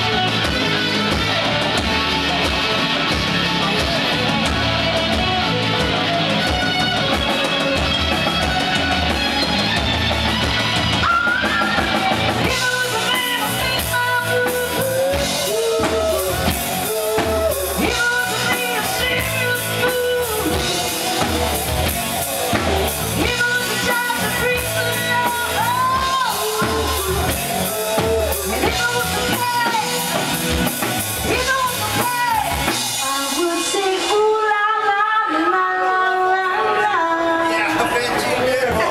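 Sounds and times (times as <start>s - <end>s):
live rock band playing: 0.0s - 38.9s
woman singing: 11.0s - 21.6s, 22.5s - 30.5s, 31.1s - 37.7s.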